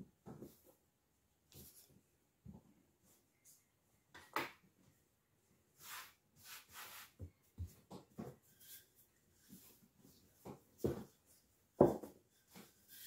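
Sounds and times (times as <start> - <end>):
brushing sounds: 5.8 - 7.7, 8.4 - 10.3, 12.3 - 13.0.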